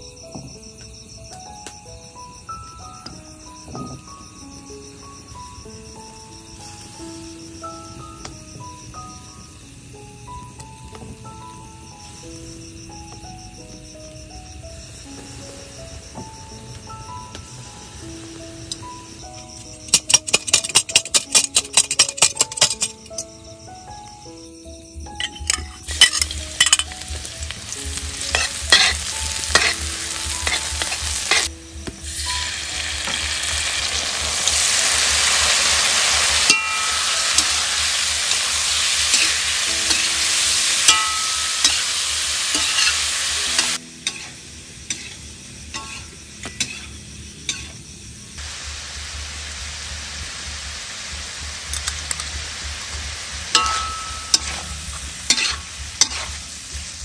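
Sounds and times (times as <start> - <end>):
food sizzling in oil: 3.8 - 13.5, 14.1 - 23.4, 25.1 - 57.0
metal spatula scraping wok: 25.3 - 31.5, 32.1 - 47.8, 53.5 - 56.6.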